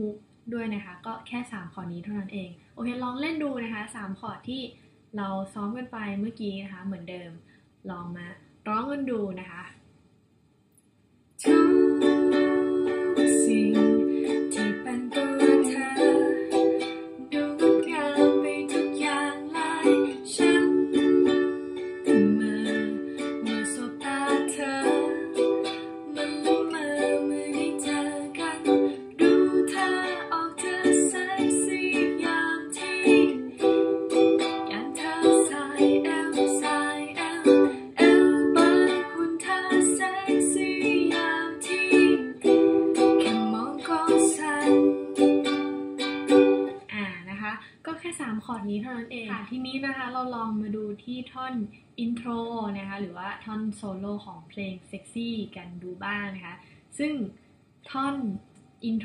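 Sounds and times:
woman singing: 0:11.4 - 0:33.7, 0:34.4 - 0:45.3
ukulele strumming: 0:11.4 - 0:46.8.

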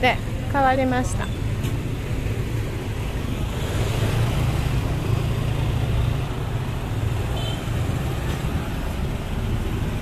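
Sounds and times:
slow street traffic rumble: 0:00.0 - 0:10.0
vehicle passing: 0:02.9 - 0:10.0.

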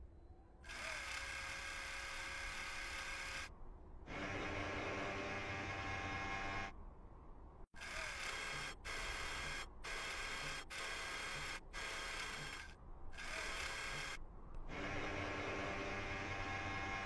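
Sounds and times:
mechanical whirring hum: 0:07.8 - 0:17.0.

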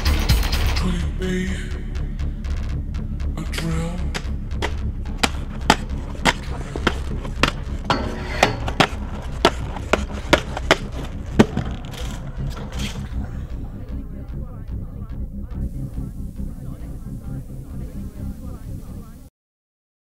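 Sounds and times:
inline skates clacking on ledges: 0:04.1 - 0:13.8
skate grinding on metal handrail: 0:04.6 - 0:13.7.

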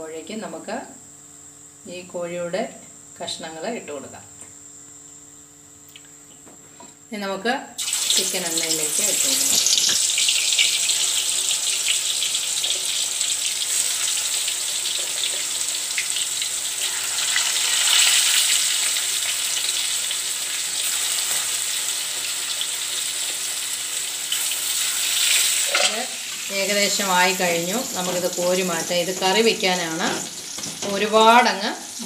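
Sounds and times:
chicken frying in hot oil: 0:07.8 - 0:32.0.

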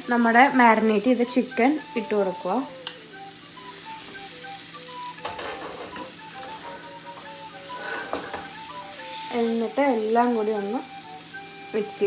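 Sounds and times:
chicken sizzling in a frying pan: 0:00.0 - 0:12.0
soft background music: 0:00.0 - 0:12.0
spatula scraping a pan: 0:05.2 - 0:09.4.

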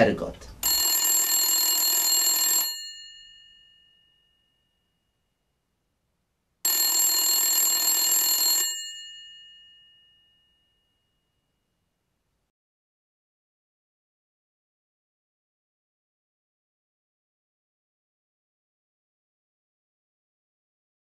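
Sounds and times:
electric telephone bell ringing: 0:00.6 - 0:04.8, 0:06.7 - 0:11.0.

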